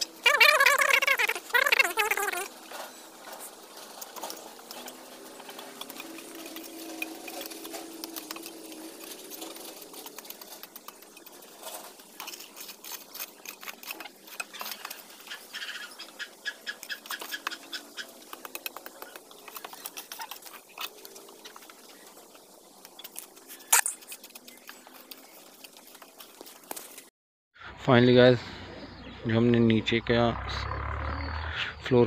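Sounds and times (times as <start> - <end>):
hand tool scraping soil: 0.0 - 27.0.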